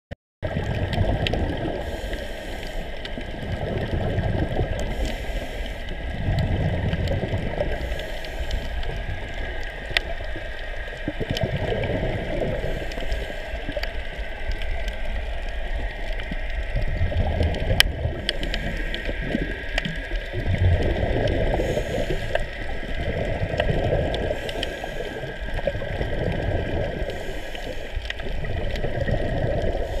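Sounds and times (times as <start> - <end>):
muffled underwater water rush: 0.4 - 30.0
faint clicks: 6.8 - 30.0.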